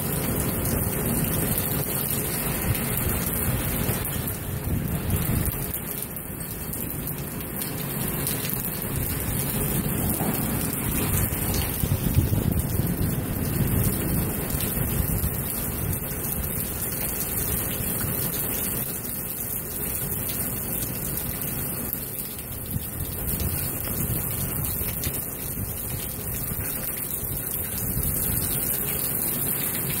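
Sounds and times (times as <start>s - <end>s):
heavy rain pouring: 0.0s - 30.0s
wind rumbling on microphone: 2.4s - 5.9s, 8.5s - 18.1s, 22.5s - 29.2s.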